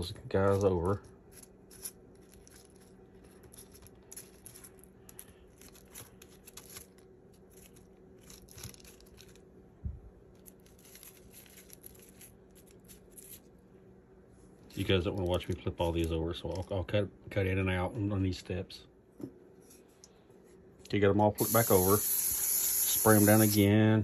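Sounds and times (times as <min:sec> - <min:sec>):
parchment paper rustling: 0:00.0 - 0:09.6, 0:10.3 - 0:13.6
faint low hum: 0:00.0 - 0:24.0.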